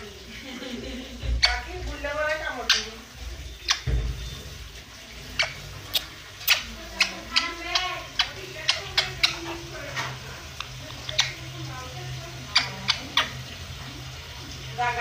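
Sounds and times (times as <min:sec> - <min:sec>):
parrot chirpy calls: 0:01.2 - 0:14.8
parrot kissing smacks: 0:05.9 - 0:07.1.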